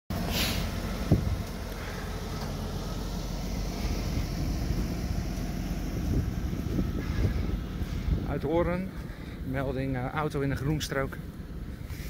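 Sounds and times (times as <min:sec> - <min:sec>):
truck engine rumbling: 0:00.1 - 0:12.0
wind on microphone: 0:01.0 - 0:01.4, 0:05.9 - 0:08.6.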